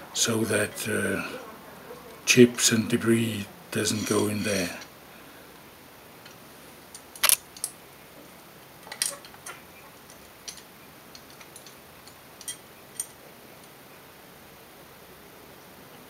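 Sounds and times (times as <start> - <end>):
small steel parts clinking: 8.8 - 13.2.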